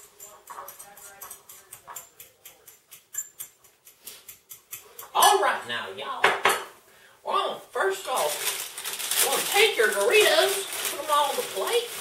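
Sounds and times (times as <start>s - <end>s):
fork scraping against a bowl: 0.0s - 5.4s.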